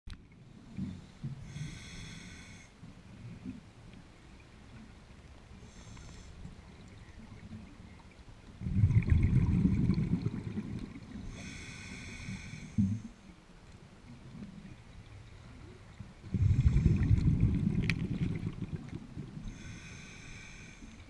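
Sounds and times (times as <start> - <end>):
regulator inhalation hiss: 1.4 - 2.7, 11.2 - 13.0, 19.5 - 21.0
rush of exhaled bubbles: 8.6 - 11.3, 16.2 - 19.6.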